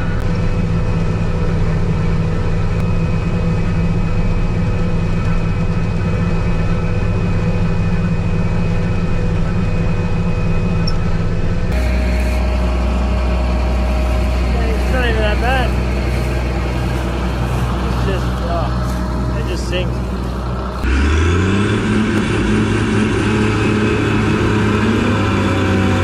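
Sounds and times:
combine harvester engine drone: 0.0s - 26.0s
deep machine hum from outside: 0.0s - 26.0s.

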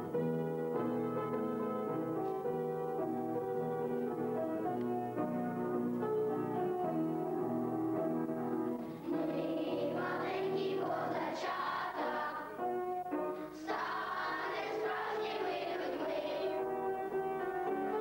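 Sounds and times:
children singing: 8.9s - 12.6s, 13.4s - 18.0s.

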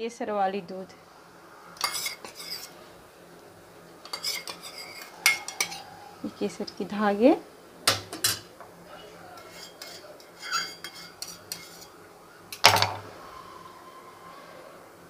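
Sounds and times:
metal spoon scraping steel bowl: 1.8s - 2.8s, 4.0s - 6.0s, 9.4s - 12.0s.

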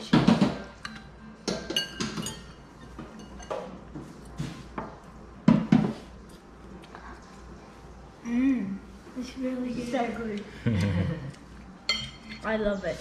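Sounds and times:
forks clinking on ceramic plates: 0.8s - 3.8s, 11.9s - 12.5s.

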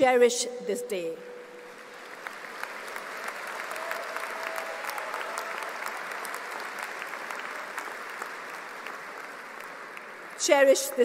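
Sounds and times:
large audience applauding: 1.7s - 10.4s.

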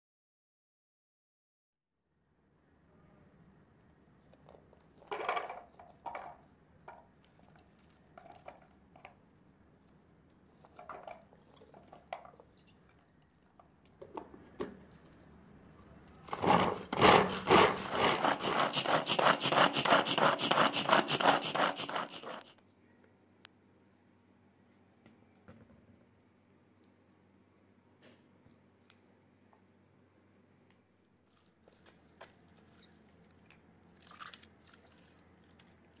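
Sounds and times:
hand chopper blades whirring: 16.3s - 22.5s.

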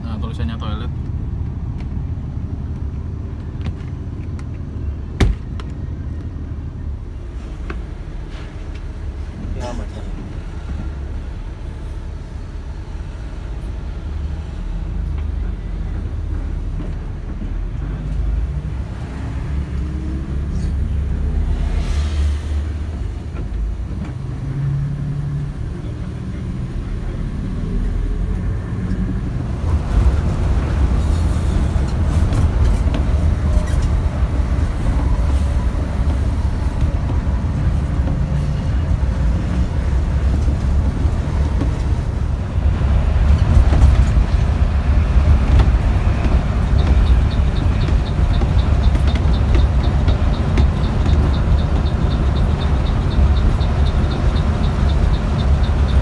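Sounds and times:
diesel engine: 0.0s - 56.0s
road drone: 0.0s - 56.0s.

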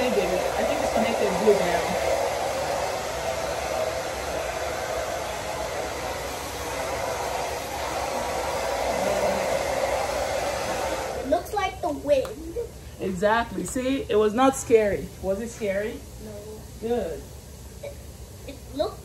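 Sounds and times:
hair dryer blowing: 0.0s - 11.6s.

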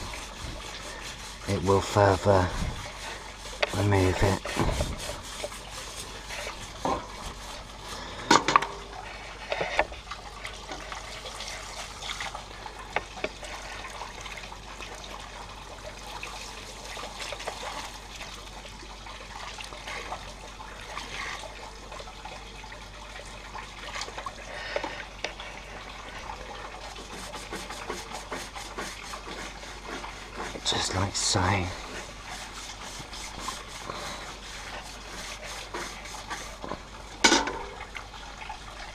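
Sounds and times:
hose spraying water on metal: 0.0s - 9.8s, 16.0s - 18.6s, 24.0s - 37.8s
scrubbing against metal: 0.0s - 9.8s, 26.9s - 36.8s.

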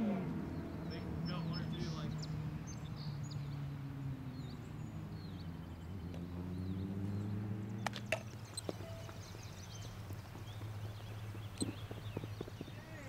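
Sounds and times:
faint bird chirps: 4.4s - 13.0s.

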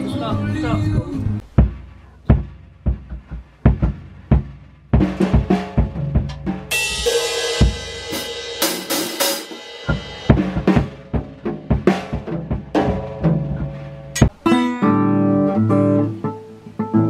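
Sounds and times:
drum strikes: 0.7s - 14.8s
cymbal crash ringing: 6.4s - 11.2s.

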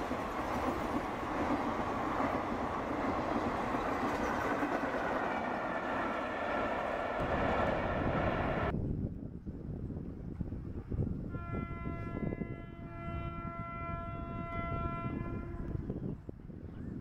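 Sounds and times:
low rumble of oncoming train: 0.0s - 17.0s
locomotive horn blast: 11.3s - 15.9s.

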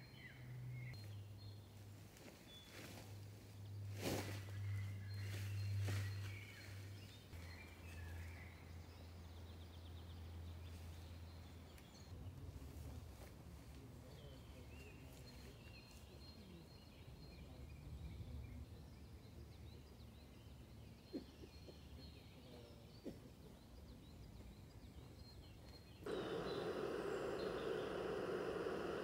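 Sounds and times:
distant bird calls: 3.9s - 10.1s, 24.2s - 29.0s
low background rumble: 26.1s - 29.0s.

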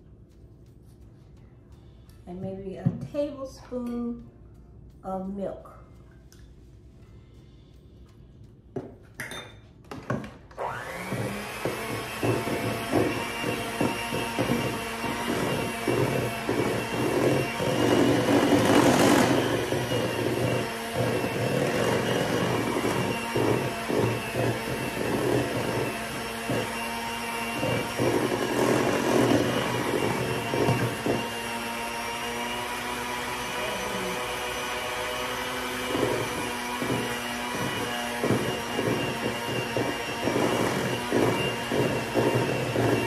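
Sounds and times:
electric mixer motor whine: 10.1s - 43.0s.

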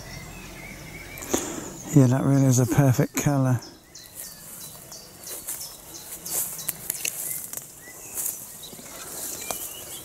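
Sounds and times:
faint bird chirps: 0.0s - 10.0s
leaves and twigs rustling: 0.4s - 10.0s
footsteps through undergrowth: 3.3s - 10.0s
twigs clicking: 6.3s - 9.9s.

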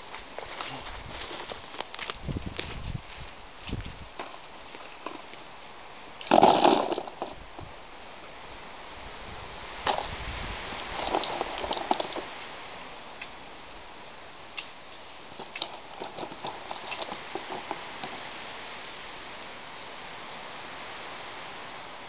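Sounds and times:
background hiss: 0.0s - 22.0s.

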